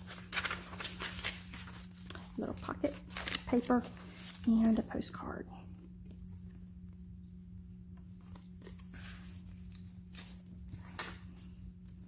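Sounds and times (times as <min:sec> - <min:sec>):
paper and fabric rustling: 0:00.0 - 0:05.3, 0:08.0 - 0:12.0
steady low hum: 0:00.0 - 0:12.0.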